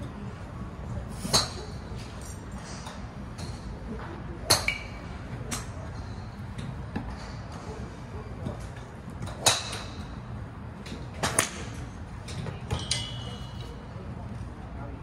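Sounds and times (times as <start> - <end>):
golf clubs striking balls: 8.6 - 10.2, 10.8 - 13.6.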